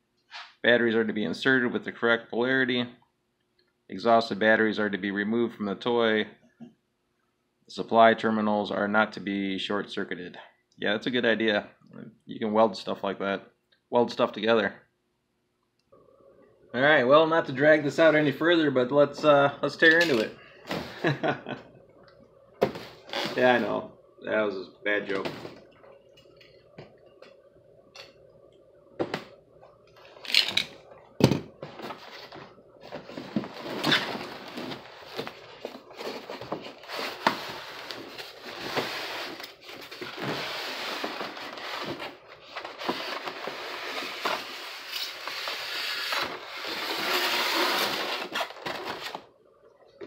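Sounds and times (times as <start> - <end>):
styrofoam scraping and rustling: 31.7 - 49.2.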